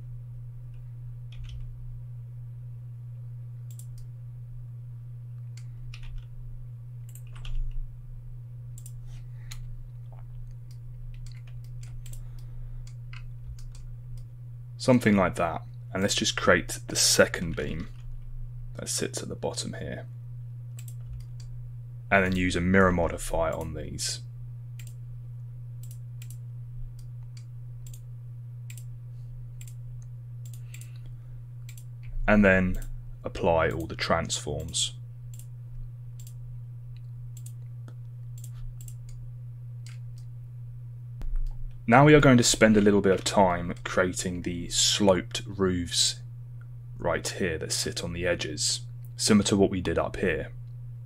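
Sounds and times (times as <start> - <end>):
steady low hum: 0.0 - 51.0
keyboard and mouse clicks: 1.3 - 1.7, 7.1 - 7.8, 8.8 - 12.5, 20.8 - 21.5, 37.0 - 39.2.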